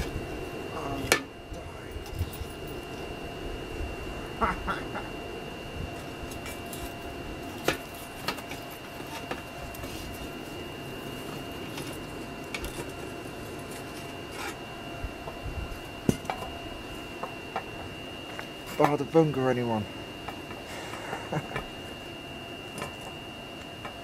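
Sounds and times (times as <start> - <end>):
furnace burning with rushing hum: 0.0 - 24.0
thin high whine: 0.0 - 24.0.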